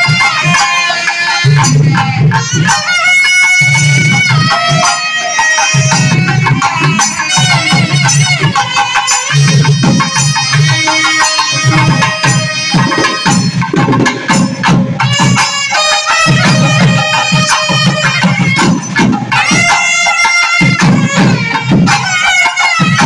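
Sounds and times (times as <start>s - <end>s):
double-reed pipes playing melody: 0.0s - 23.0s
barrel drum beat: 5.6s - 23.0s.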